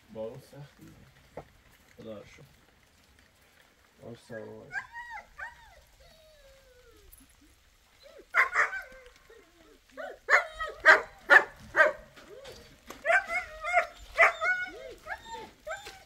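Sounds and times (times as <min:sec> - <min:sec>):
dog barking: 0:08.3 - 0:08.9, 0:10.0 - 0:12.1, 0:13.0 - 0:14.7.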